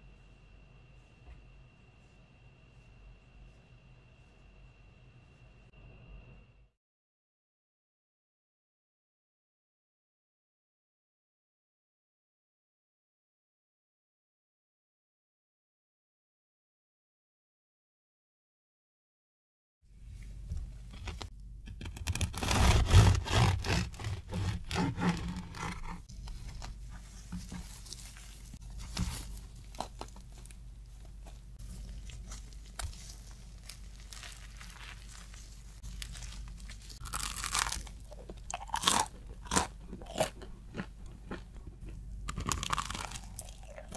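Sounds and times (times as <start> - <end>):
bread crust crackling: 21.0 - 41.5, 42.2 - 43.9.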